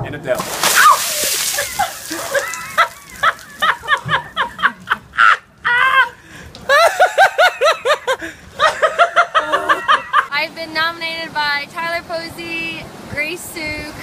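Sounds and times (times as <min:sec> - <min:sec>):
hearty laughter: 0:01.6 - 0:10.3.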